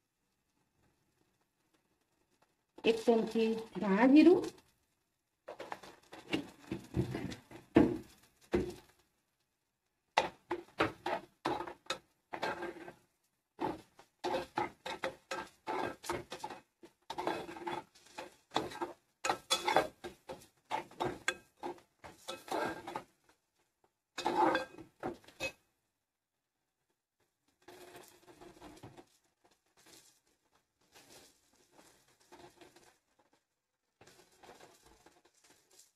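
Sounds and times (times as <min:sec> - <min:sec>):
spoon scraping a cooking pan: 0:02.9 - 0:04.6, 0:05.5 - 0:08.9, 0:10.2 - 0:23.4, 0:24.2 - 0:25.6, 0:27.6 - 0:33.1, 0:34.0 - 0:35.9.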